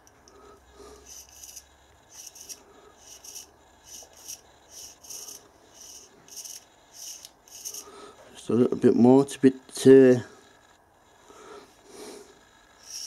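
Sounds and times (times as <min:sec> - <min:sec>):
fingertips rubbing metal: 0:00.3 - 0:07.9.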